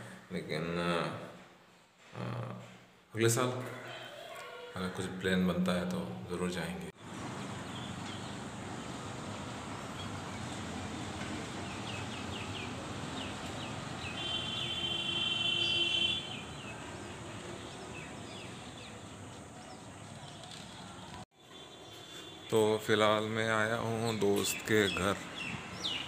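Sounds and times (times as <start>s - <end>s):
small birds chirping: 7.3s - 22.9s, 23.5s - 26.0s.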